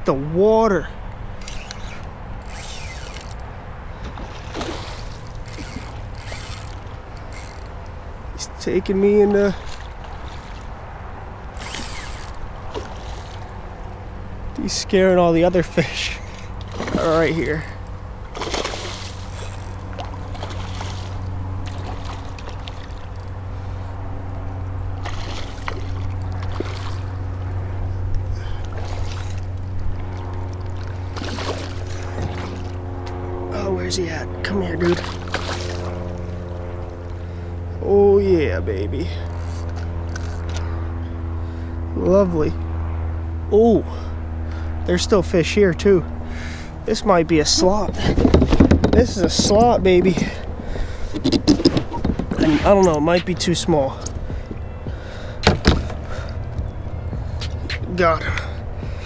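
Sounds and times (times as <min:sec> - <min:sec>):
steady low hum: 0:00.0 - 0:59.0
steady low rumble: 0:00.0 - 0:59.0
fishing reel creaks and clicks: 0:01.4 - 0:03.5, 0:05.1 - 0:07.9, 0:11.5 - 0:13.4, 0:19.2 - 0:19.9, 0:39.2 - 0:40.7
fish splashing at water surface: 0:04.2 - 0:05.3, 0:18.3 - 0:23.0, 0:30.8 - 0:32.7.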